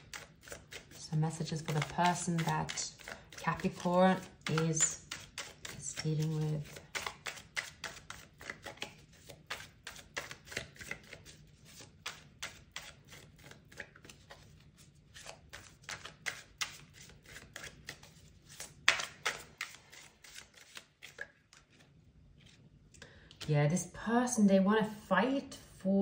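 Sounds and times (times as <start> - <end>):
cards being shuffled by hand: 0.0 - 22.7.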